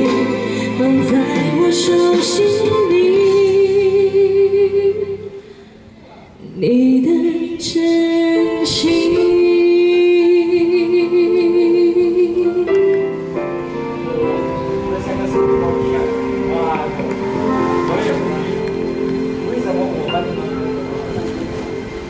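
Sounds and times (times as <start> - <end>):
man and woman singing duet: 0.0 - 5.4
backing music: 0.0 - 6.0, 7.1 - 22.0.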